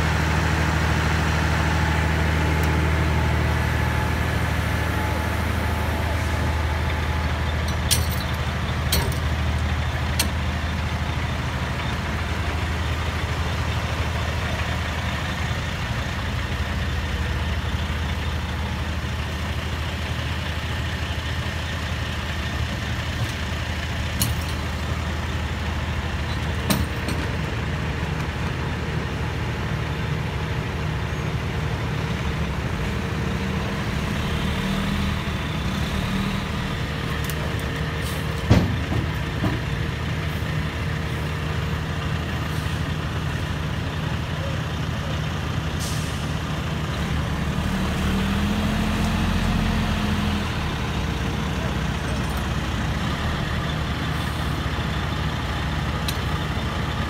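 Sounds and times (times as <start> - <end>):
diesel truck engines running: 0.0 - 57.0.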